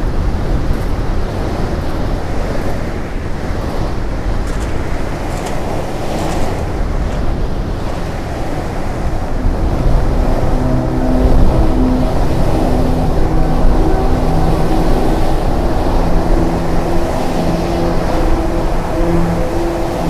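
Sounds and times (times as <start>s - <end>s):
wind buffeting microphone: 0.0s - 20.0s
sustained music notes: 4.0s - 20.0s.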